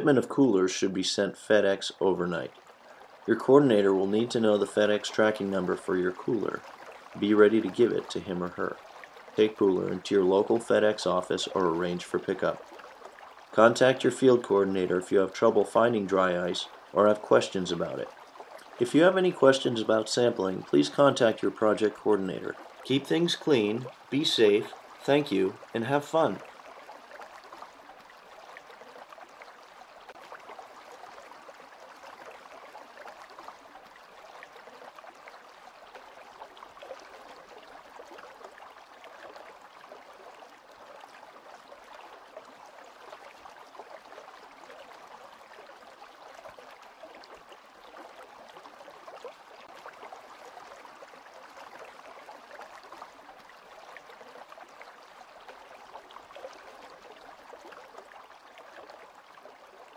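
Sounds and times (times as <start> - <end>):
stream water running: 0.0 - 59.9.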